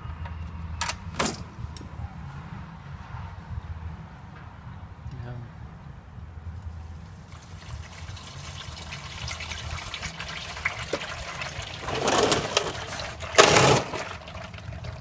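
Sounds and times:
oil splashing into plastic pan: 7.3s - 15.0s.

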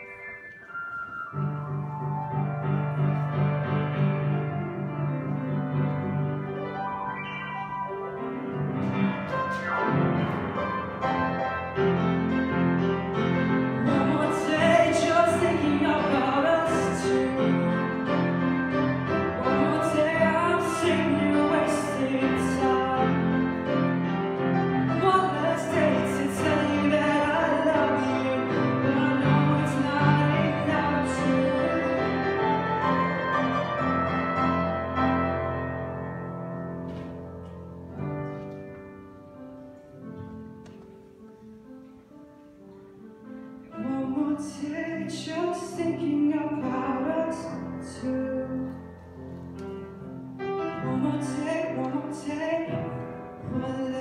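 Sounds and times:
piano playing chords: 0.0s - 54.0s
man singing into a microphone: 13.8s - 18.3s, 19.4s - 23.6s, 24.9s - 32.2s, 43.8s - 48.8s, 50.8s - 54.0s.

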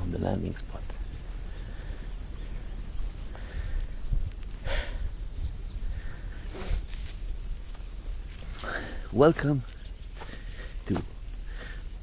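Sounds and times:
low microphone rumble: 0.0s - 9.2s
insects chirring: 0.0s - 12.0s.

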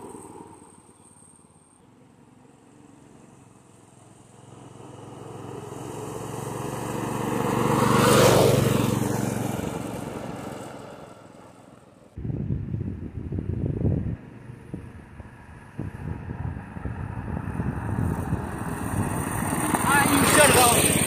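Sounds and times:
minibike engine passing by: 0.0s - 12.1s, 13.8s - 21.0s
wind noise on microphone: 12.2s - 19.9s.

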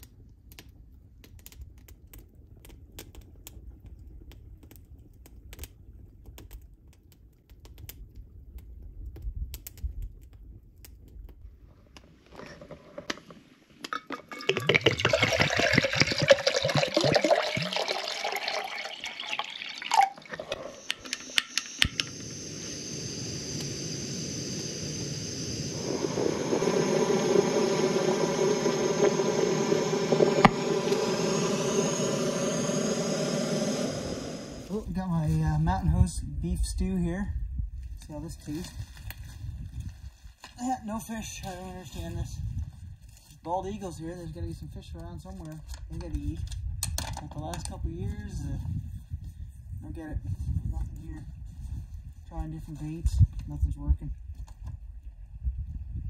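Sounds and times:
water pouring and splashing: 12.3s - 21.8s
gas burner hissing hum: 14.5s - 36.0s
sharp click: 20.9s - 22.2s.

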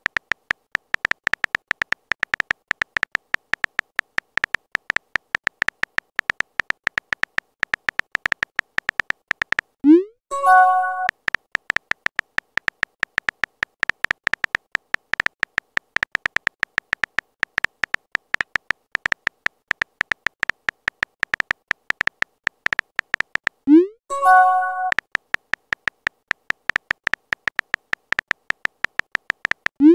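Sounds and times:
phone keyboard typing clicks: 0.0s - 9.8s, 10.4s - 29.9s
chime of steady tones: 10.3s - 11.1s, 24.1s - 24.9s.

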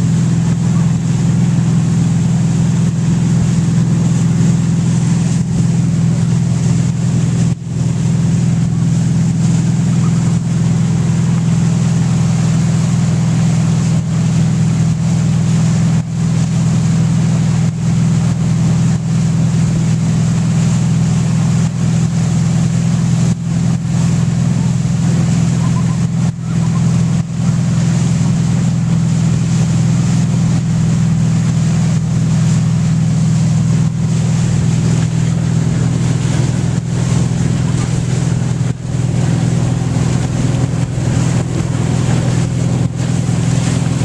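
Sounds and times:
boat engine humming: 0.0s - 44.0s
rushing wash of wake: 0.0s - 44.0s
wind on microphone: 34.0s - 44.0s.

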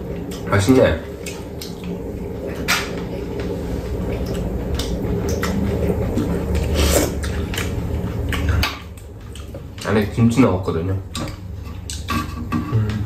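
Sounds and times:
steady low hum: 0.0s - 13.0s
wet chewing and slurping: 1.1s - 10.2s, 11.1s - 13.0s
utensils clicking against bowls: 11.1s - 13.0s.

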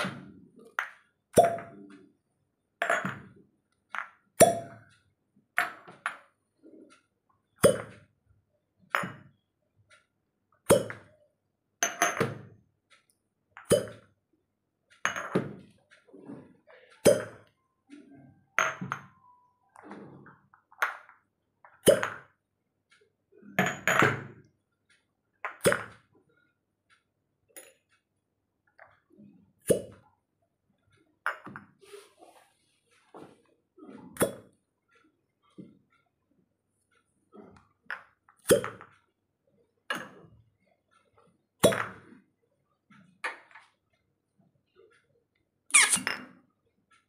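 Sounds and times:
glass cups clinking: 0.8s - 1.8s, 2.8s - 3.3s, 11.8s - 12.4s, 15.1s - 15.5s, 17.0s - 17.6s, 18.6s - 19.2s
glass clinking: 18.6s - 19.3s.

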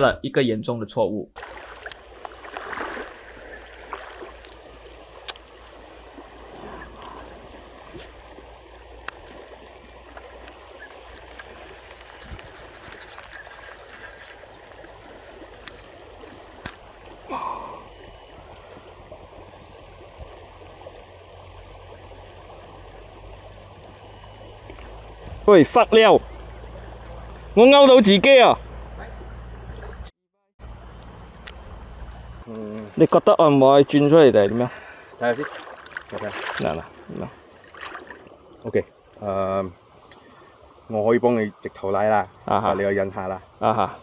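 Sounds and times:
high-pitched insect drone: 1.4s - 34.4s
flowing water: 1.4s - 44.0s.

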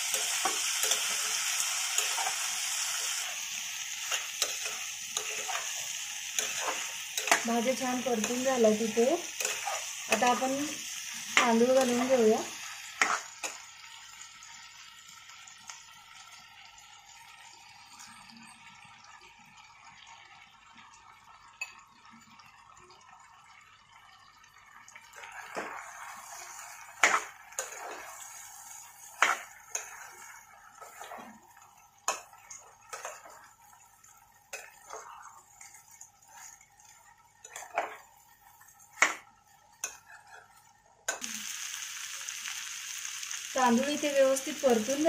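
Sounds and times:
food sizzling in pan: 0.0s - 45.0s
spoon scraping and clinking pan: 37.4s - 38.1s.

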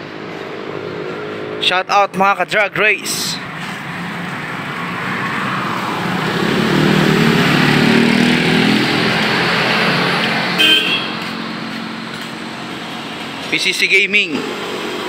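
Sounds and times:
vehicle engine passing: 0.0s - 2.2s, 3.1s - 15.0s
car horn beep: 10.6s - 11.2s.

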